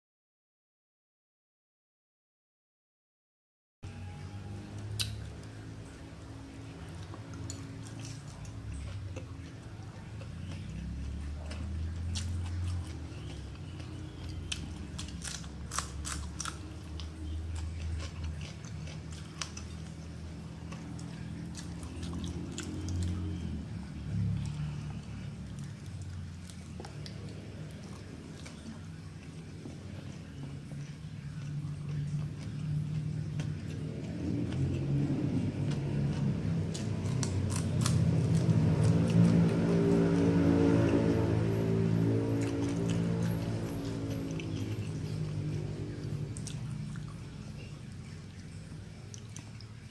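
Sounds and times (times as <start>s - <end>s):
low hum: 3.8s - 49.9s
person chewing food: 4.8s - 49.9s
crunchy bites: 11.4s - 20.0s, 31.3s - 40.3s.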